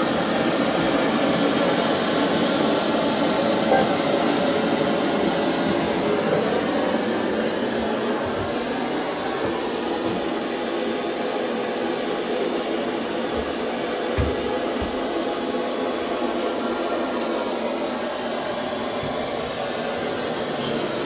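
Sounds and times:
faint low thuds: 13.3 - 15.2.

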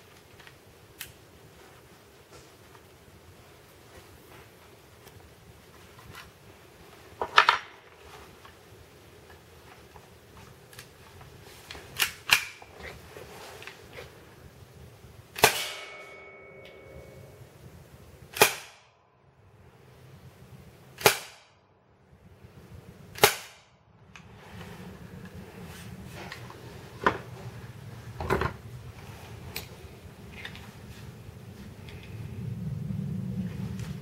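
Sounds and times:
airsoft pistol shots: 15.4 - 16.2, 18.3 - 18.9, 21.0 - 21.5, 23.1 - 23.7.

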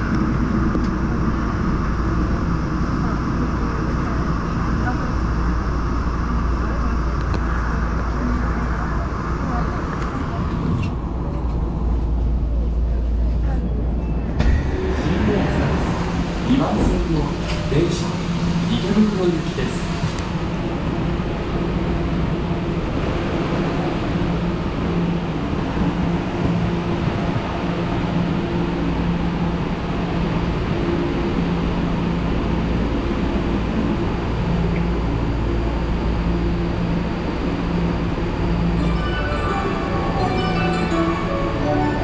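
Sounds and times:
train equipment hum: 0.0 - 42.0
platform ambience: 13.7 - 21.2, 36.4 - 42.0
electronic departure melody: 37.7 - 42.0.

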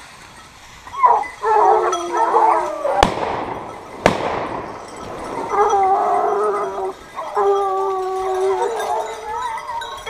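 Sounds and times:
hunting hounds baying: 0.8 - 10.0
gunshots with echo: 3.0 - 5.5.

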